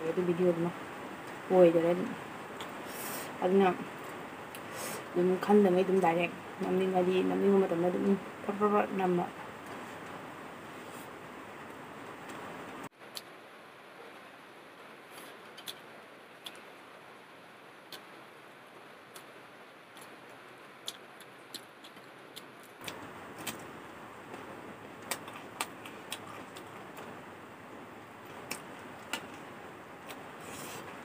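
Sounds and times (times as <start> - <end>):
steady hiss: 0.0 - 31.0
person chewing food: 15.1 - 15.8, 20.8 - 23.7, 24.3 - 27.1, 28.2 - 29.4.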